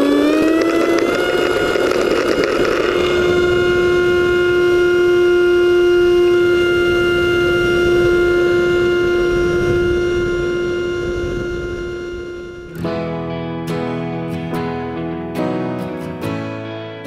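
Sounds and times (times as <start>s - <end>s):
model airplane motor whine: 0.0s - 12.9s
wind: 0.0s - 13.5s
rough rumble of ground roll: 0.5s - 4.4s.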